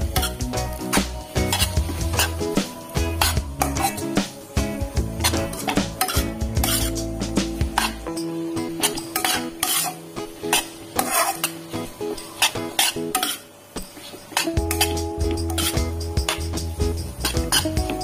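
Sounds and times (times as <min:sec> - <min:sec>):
metal spatula scraping wok: 0:00.0 - 0:18.0
noodles sizzling: 0:00.0 - 0:18.0.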